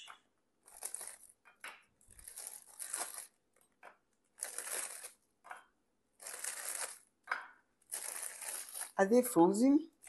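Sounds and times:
biscuit packaging rustling: 0.6s - 5.3s, 6.2s - 7.2s, 7.8s - 9.2s.

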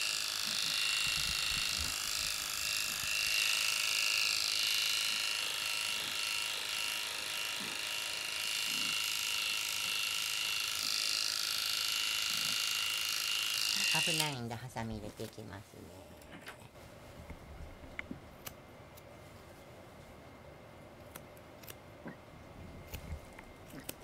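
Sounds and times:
electric pet clipper shaving fur: 0.0s - 14.5s.

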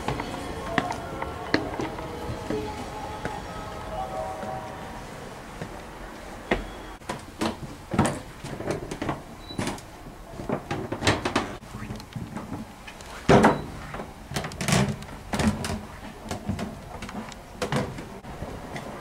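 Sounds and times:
footsteps on wooden floor: 0.0s - 4.6s, 5.6s - 6.8s.

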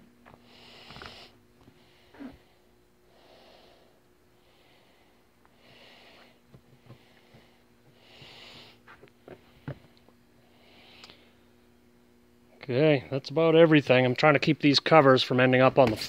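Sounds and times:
steady low hum: 0.0s - 16.0s
faint breathing: 0.3s - 11.6s.

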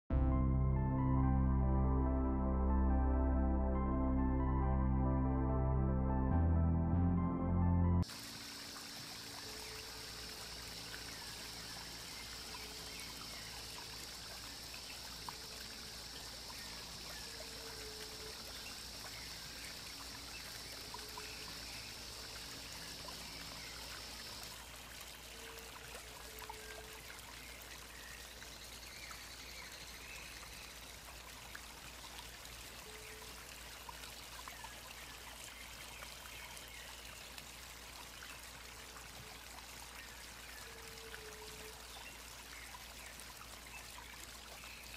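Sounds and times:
steady high hiss: 8.0s - 24.8s
stream water trickling: 8.0s - 44.9s.

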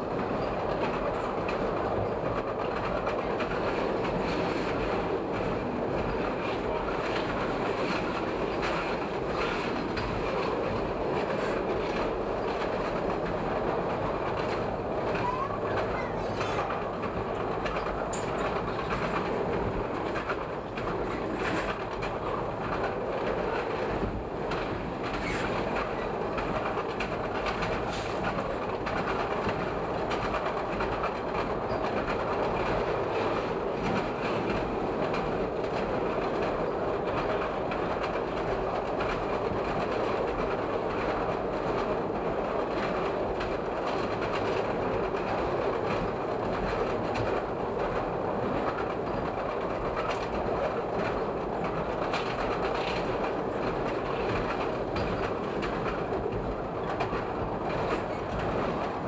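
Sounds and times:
elevated train running: 0.0s - 59.0s
wheels clicking over rail joints: 0.2s - 59.0s.

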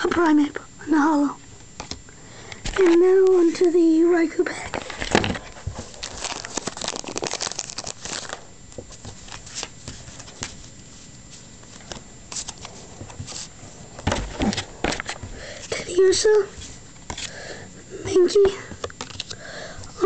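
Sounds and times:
foil wrapper crinkling: 4.7s - 10.8s.

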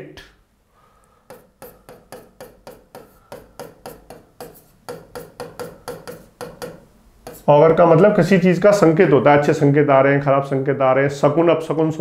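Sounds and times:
light sharp taps: 1.3s - 7.5s.

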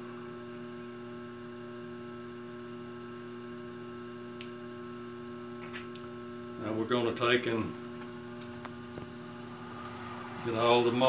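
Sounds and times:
potter's wheel motor humming: 0.0s - 11.0s.

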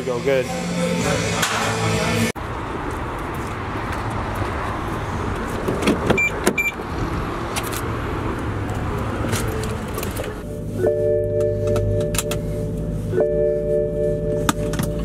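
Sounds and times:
traffic hum: 0.0s - 15.0s
short high beeps: 10.4s - 12.2s, 13.1s - 14.5s.

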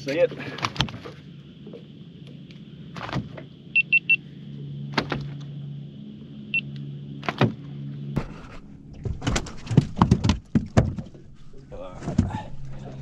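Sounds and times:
low motor hum: 0.0s - 13.0s
knocks and thumps on boat deck: 2.9s - 3.5s, 7.2s - 11.4s
electronic beeps: 3.7s - 4.2s, 6.5s - 6.7s.

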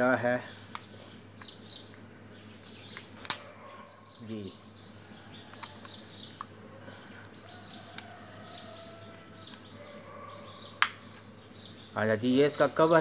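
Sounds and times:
small birds chirping: 0.0s - 13.0s
plastic clicks from handling: 5.5s - 6.5s.

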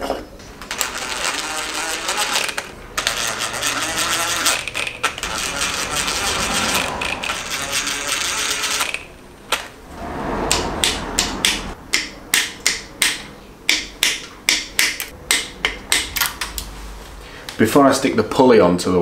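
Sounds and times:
cordless drill running: 0.7s - 6.3s.

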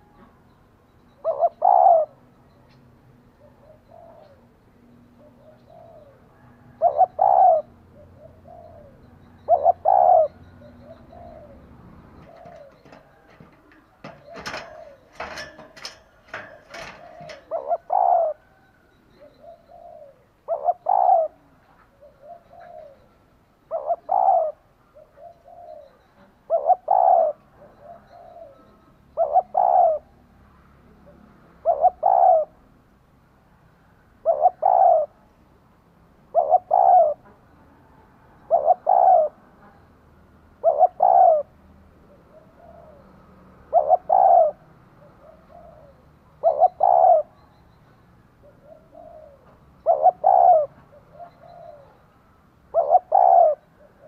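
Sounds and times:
dove cooing: 1.1s - 2.2s, 3.3s - 30.3s, 31.0s - 32.7s, 34.2s - 35.3s, 36.3s - 39.8s, 40.6s - 47.5s, 48.4s - 54.0s.

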